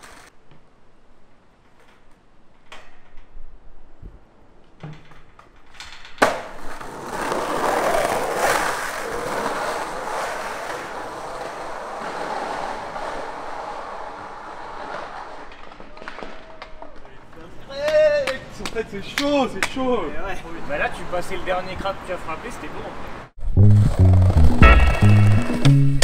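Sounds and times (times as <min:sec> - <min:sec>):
skateboard wheels rolling rumble: 0:00.0 - 0:02.6, 0:03.4 - 0:17.6
skateboard clacking on pavement: 0:06.2 - 0:19.8.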